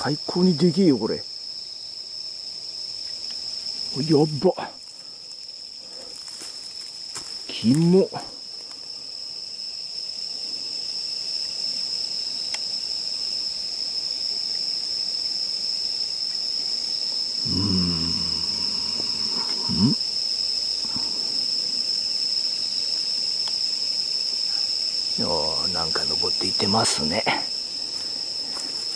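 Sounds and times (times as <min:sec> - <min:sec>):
night insects chorus: 0:00.0 - 0:28.9
man wordless vocal sound: 0:17.4 - 0:20.0.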